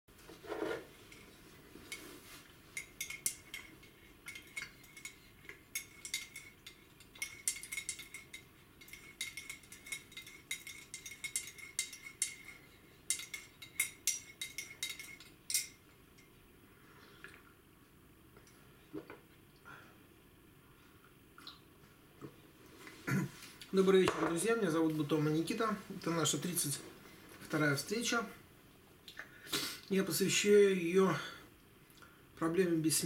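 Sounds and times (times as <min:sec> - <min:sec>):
teaspoon clinking in ceramic cup: 0:02.8 - 0:15.8.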